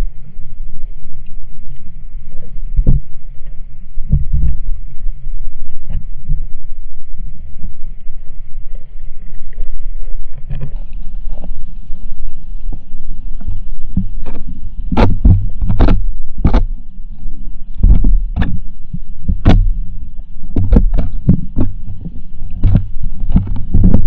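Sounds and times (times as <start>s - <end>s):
underwater rumble of moving water: 0.0s - 24.0s.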